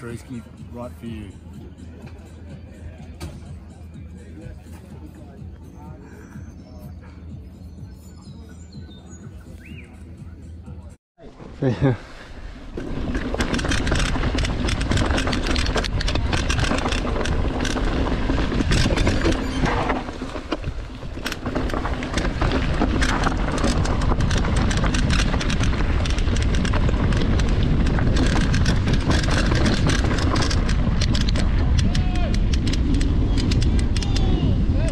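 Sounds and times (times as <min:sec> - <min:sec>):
deep rumble: 0:12.3 - 0:34.9
wind buffeting microphone: 0:12.7 - 0:34.9
rattling clicks: 0:13.0 - 0:34.3.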